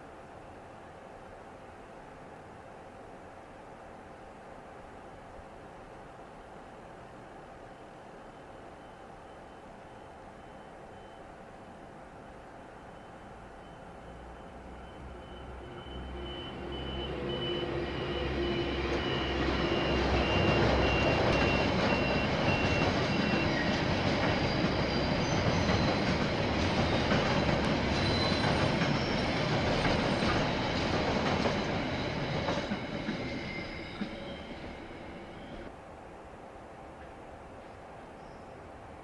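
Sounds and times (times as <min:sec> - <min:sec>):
train rumbling past: 0:00.0 - 0:35.8
faint wheel squeal: 0:27.8 - 0:30.6, 0:31.6 - 0:35.7.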